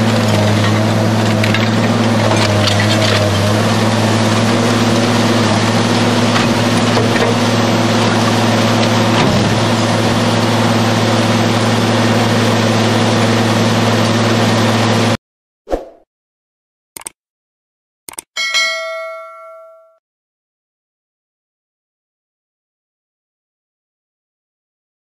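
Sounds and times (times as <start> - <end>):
shredder rotors cracking scrap: 0.0 - 11.0
shredder engine humming: 0.0 - 15.2.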